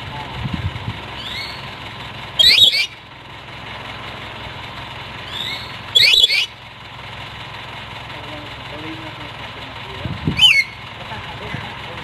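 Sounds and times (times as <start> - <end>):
parrot shrieking: 1.2 - 1.6, 2.4 - 3.0, 5.3 - 6.5, 10.4 - 10.8
faint rising bird call: 1.2 - 1.7, 2.4 - 3.0, 5.3 - 6.6, 10.4 - 10.9.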